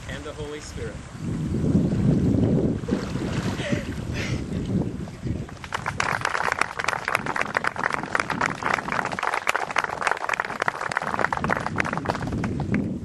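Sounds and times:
group of people clapping: 5.6 - 12.9.

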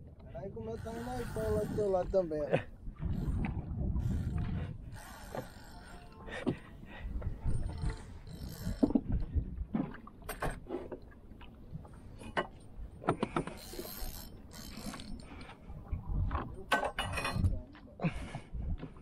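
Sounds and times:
fishing gear clicking and knocking: 4.3 - 9.2, 12.2 - 15.6.

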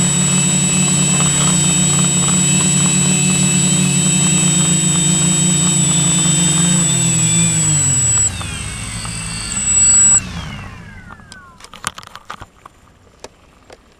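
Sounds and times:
drone propellers whirring: 0.0 - 11.8
sharp clicks: 0.2 - 10.2.

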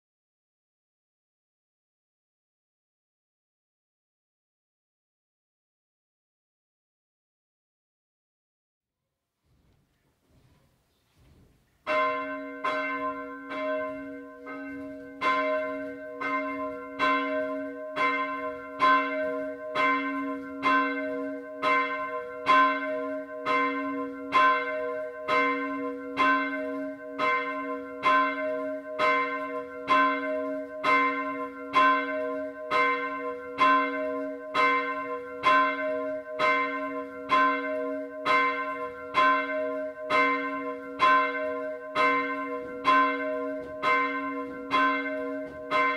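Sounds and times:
church bell ringing: 11.8 - 45.9.

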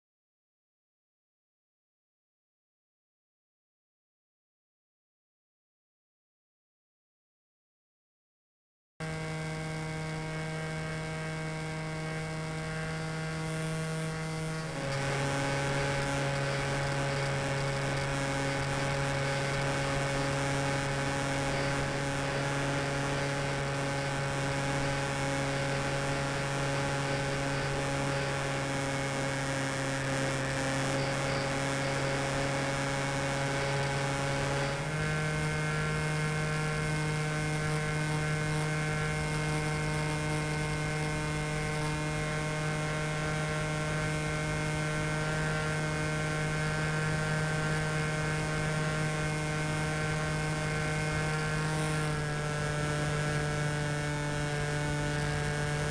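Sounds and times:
model aircraft motor whining: 9.0 - 55.9.

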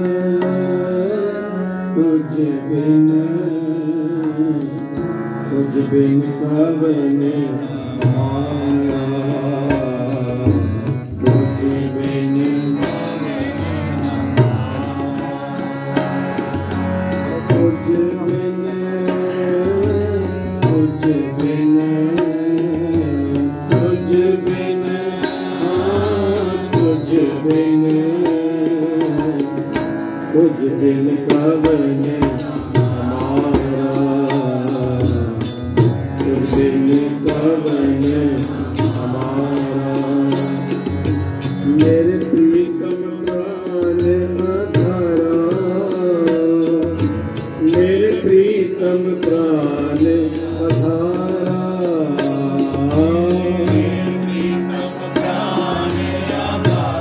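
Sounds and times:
man singing a hymn: 0.0 - 4.8, 5.5 - 16.0, 17.3 - 29.4, 30.3 - 35.4, 36.1 - 40.8, 41.7 - 57.0
harmonium: 0.0 - 57.0
tabla strokes: 31.3 - 57.0.

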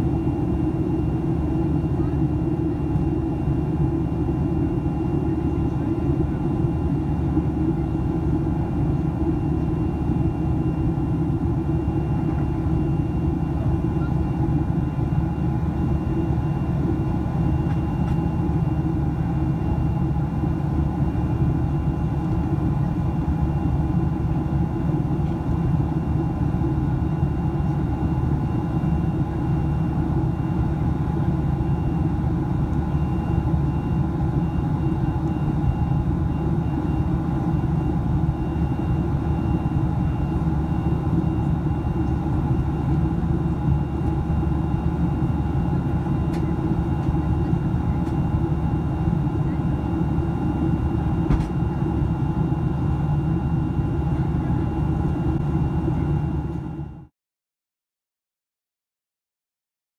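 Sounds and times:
jet engine drone: 0.0 - 57.1.

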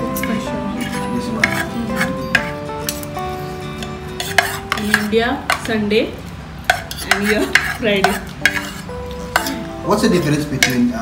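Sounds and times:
music playing: 0.0 - 6.2, 6.9 - 11.0
cutlery clinking on plates: 0.1 - 3.1, 6.7 - 9.7.

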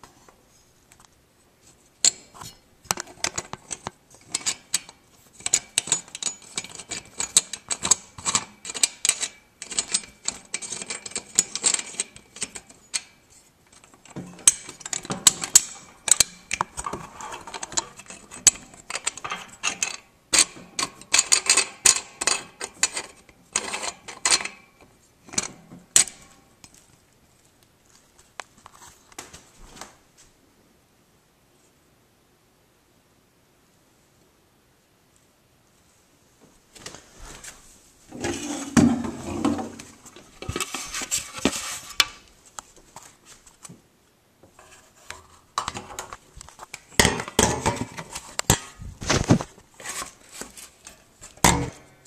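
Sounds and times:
metal hardware clicking and rattling: 2.0 - 24.7, 25.3 - 26.8, 45.6 - 49.4.

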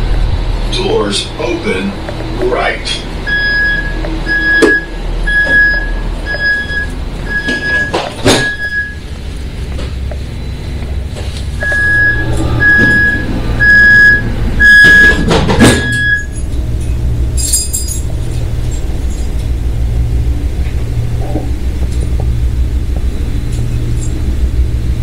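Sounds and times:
low diesel engine hum: 0.0 - 25.0
high door warning beeps: 3.2 - 9.1, 10.2 - 16.5
doors shutting thunk: 3.3 - 8.9, 11.2 - 16.3.

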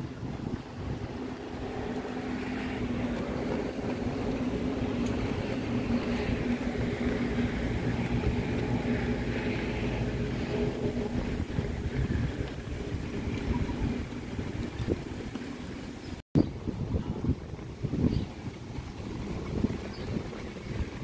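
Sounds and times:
low rumble: 0.0 - 15.4
engine hum: 0.0 - 16.2.

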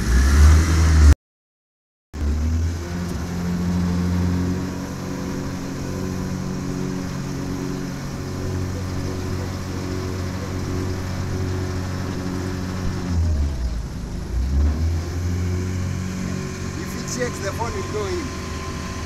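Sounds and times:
outboard motor running: 2.2 - 19.0.

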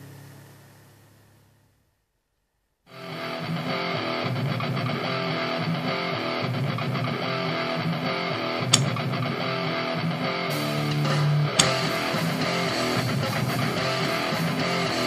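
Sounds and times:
song with strummed guitar: 2.9 - 15.0
sharp click: 8.6 - 9.1, 10.8 - 12.2.

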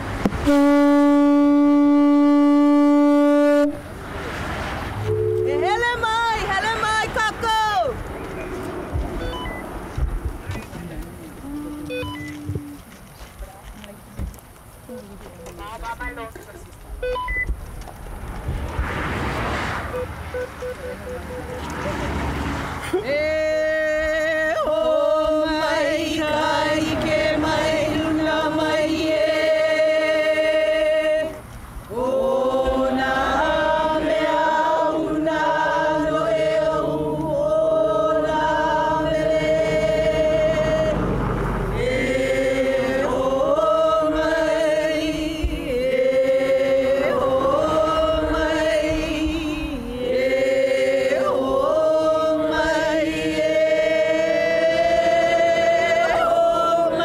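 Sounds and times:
group singing in unison: 22.1 - 57.0.

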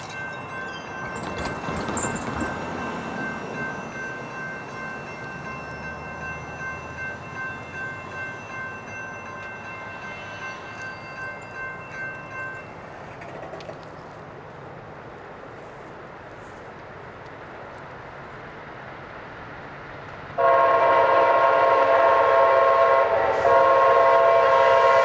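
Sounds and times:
railroad crossing bell ringing: 0.0 - 13.2
faint rumble of train: 0.0 - 25.0.

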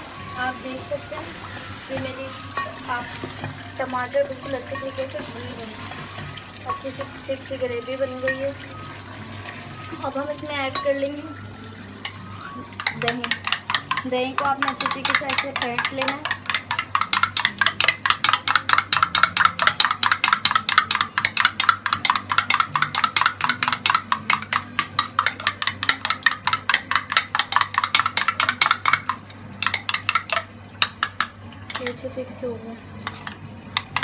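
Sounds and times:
metal utensil clicking against bowl: 12.8 - 32.1, 33.0 - 34.0.

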